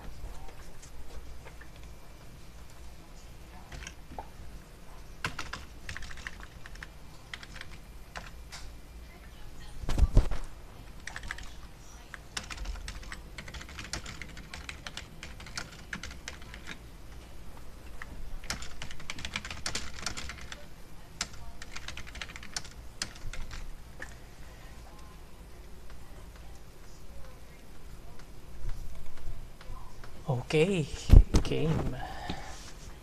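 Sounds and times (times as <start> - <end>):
computer keyboard typing: 3.6 - 4.3, 5.2 - 8.7, 10.9 - 16.8, 17.8 - 24.2.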